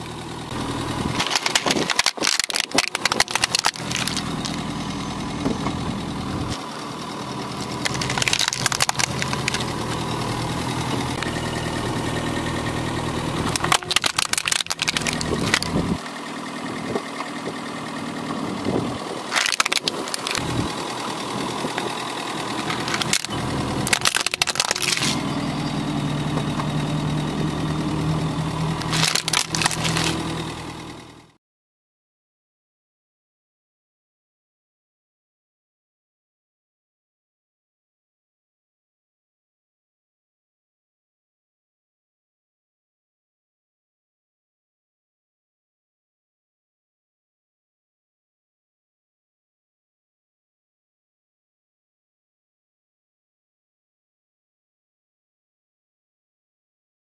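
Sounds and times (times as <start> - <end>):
car engine idling: 0.0 - 31.4
plastic toys cracking under tyre: 1.2 - 4.6, 7.6 - 10.0, 13.5 - 15.9, 19.3 - 20.5, 22.6 - 25.2, 28.8 - 30.4.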